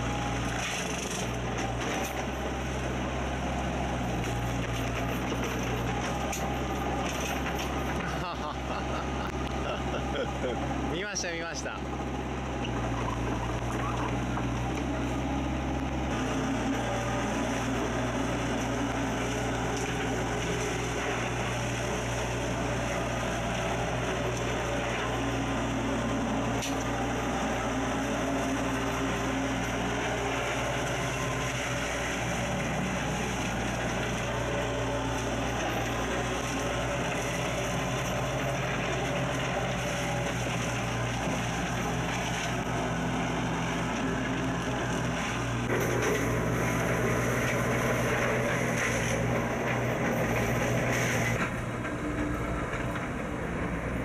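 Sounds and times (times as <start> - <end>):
brush cutter shredding vines: 0.0 - 54.0
diesel excavator engine running: 0.0 - 54.0.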